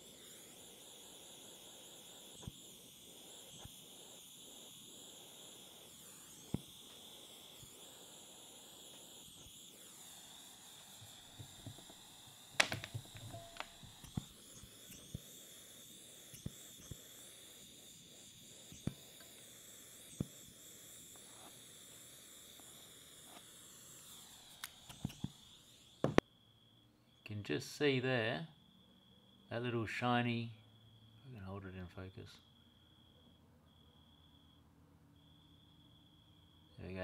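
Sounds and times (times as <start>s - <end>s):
torch flame hissing: 0.0s - 26.2s.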